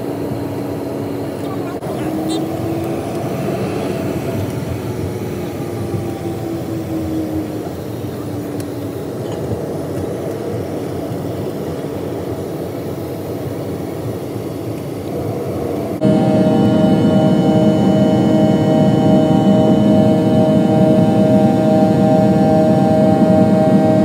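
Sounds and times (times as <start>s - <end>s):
faint engine whine: 0.0s - 24.0s
jet engines rumbling from cabin: 0.0s - 24.0s.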